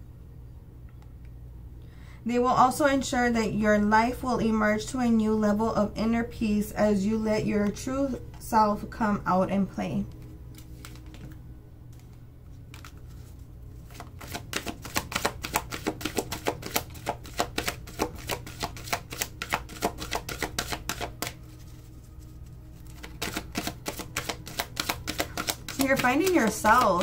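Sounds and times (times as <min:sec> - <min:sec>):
cards being shuffled by hand: 0:10.1 - 0:27.0.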